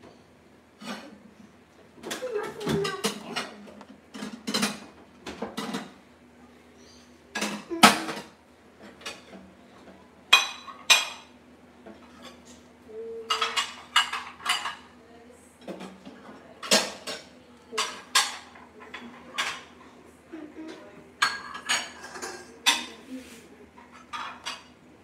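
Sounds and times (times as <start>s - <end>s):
dishes and cutlery clinking: 2.0s - 6.0s, 7.3s - 15.0s, 15.6s - 20.0s, 20.6s - 23.1s, 23.7s - 24.8s.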